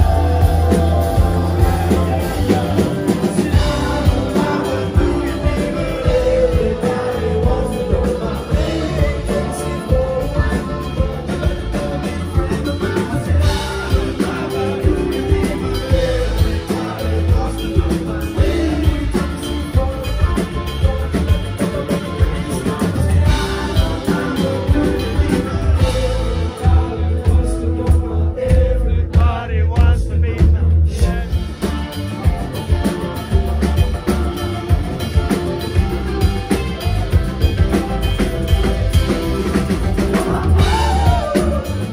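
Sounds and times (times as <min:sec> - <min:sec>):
lead singer vocals: 0:00.0 - 0:31.7, 0:39.5 - 0:41.9
drums: 0:00.0 - 0:41.9
guitar: 0:00.0 - 0:41.9
keyboards: 0:00.0 - 0:41.9.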